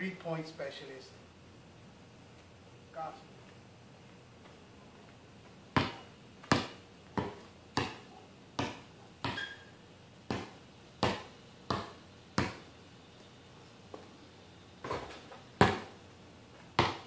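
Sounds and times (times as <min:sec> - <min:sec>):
basketball bouncing on concrete: 0:05.7 - 0:12.7, 0:14.8 - 0:16.0, 0:16.7 - 0:17.0.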